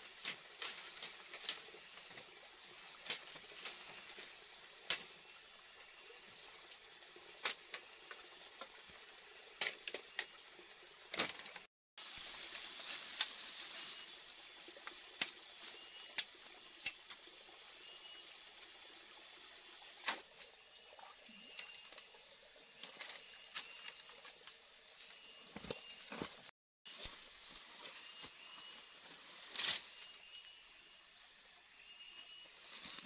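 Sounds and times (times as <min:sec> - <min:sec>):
forest background hiss: 0:00.0 - 0:33.0.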